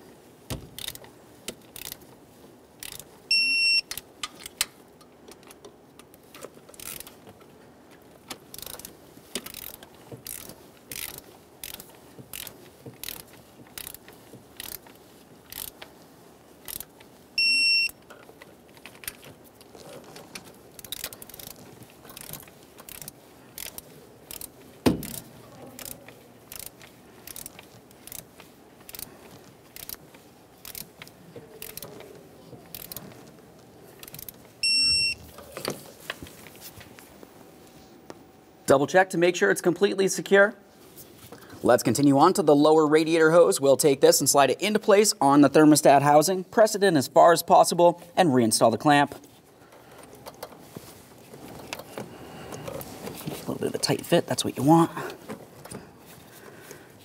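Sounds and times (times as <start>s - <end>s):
torque wrench ratchet clicking: 0.8s - 1.0s, 1.8s - 2.0s, 2.8s - 3.0s, 6.8s - 7.1s, 8.5s - 14.8s, 15.5s - 15.8s, 16.6s - 16.9s, 20.8s - 21.6s, 22.2s - 25.2s, 25.8s - 29.1s, 29.7s - 30.0s, 30.6s - 30.9s, 31.6s - 31.9s, 32.7s - 33.0s, 34.0s - 34.4s.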